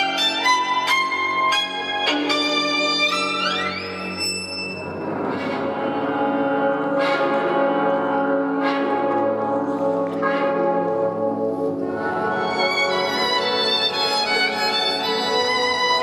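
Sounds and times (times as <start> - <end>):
violin melody: 0.0 - 5.1, 5.8 - 16.0
orchestral music over sound system: 0.0 - 16.0
bell-like stroke: 2.1 - 5.1.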